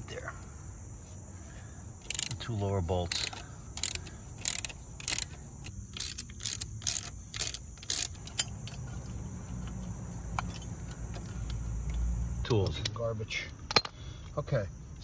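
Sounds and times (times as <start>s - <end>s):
ratchet clicking on bolts: 2.0s - 14.0s.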